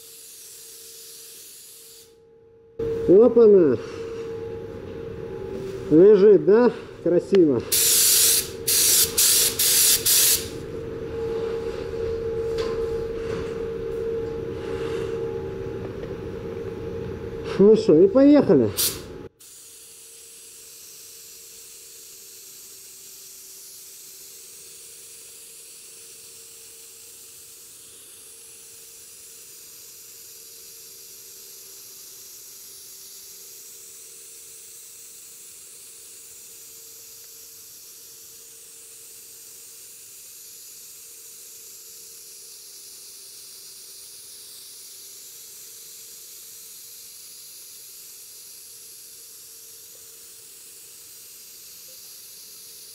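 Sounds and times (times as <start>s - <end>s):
spray gun hissing: 0.0s - 2.2s, 7.7s - 10.6s, 18.8s - 52.9s.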